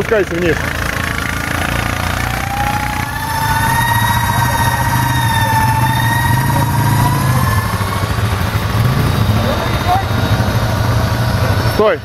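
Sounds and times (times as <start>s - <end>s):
diesel engine idling: 0.0s - 12.0s
high whine: 1.9s - 9.3s.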